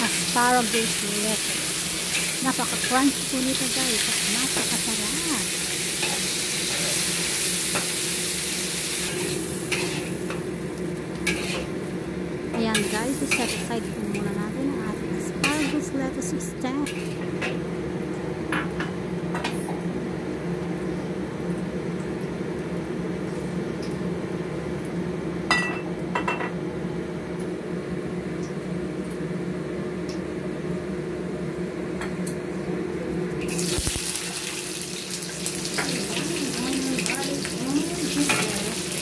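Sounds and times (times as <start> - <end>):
hot oil sizzling loudly: 0.0 - 18.7, 33.4 - 39.0
low hum of gas flame: 0.0 - 39.0.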